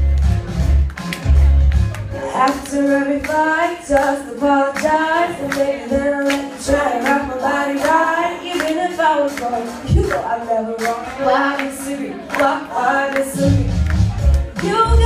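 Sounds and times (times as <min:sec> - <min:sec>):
girl singing into a microphone: 0:02.3 - 0:13.7, 0:14.6 - 0:15.0.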